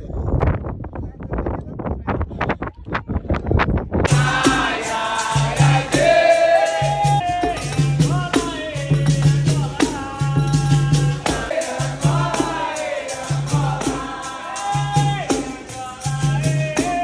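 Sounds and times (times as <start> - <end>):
atabaque drum: 2.6 - 17.0
pandeiros: 3.6 - 17.0
singing voices: 4.1 - 17.0.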